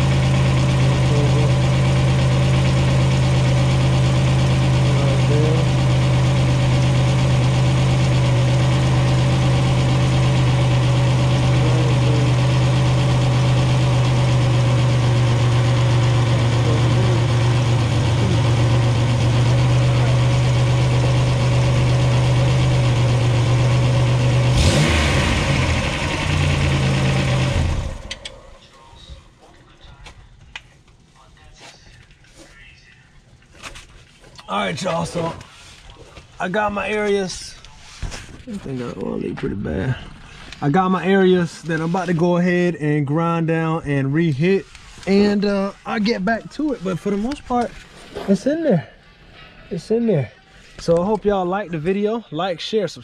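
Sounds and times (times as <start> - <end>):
car engine idling: 0.0 - 29.1, 38.4 - 47.9.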